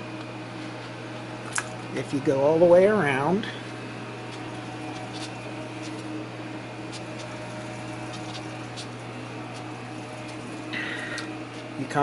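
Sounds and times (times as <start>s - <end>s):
electrical hum with fan noise: 0.0s - 12.0s.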